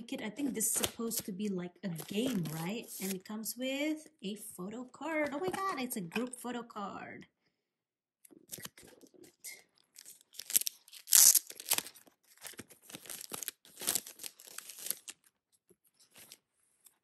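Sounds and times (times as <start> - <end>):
plastic sleeve rustling: 9.9 - 15.3, 15.9 - 17.0.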